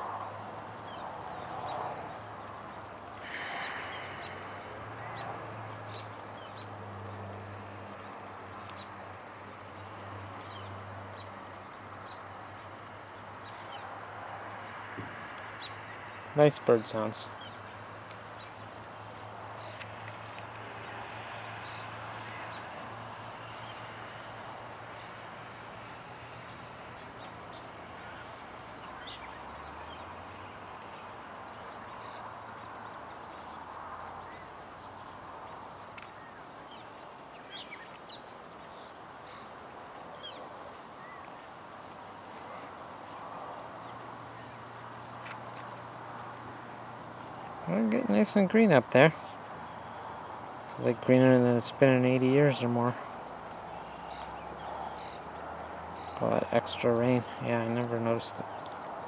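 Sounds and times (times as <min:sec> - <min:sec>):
high-pitched insect chirping: 0:00.3 - 0:50.7
faint bird calls: 0:02.6 - 0:07.2.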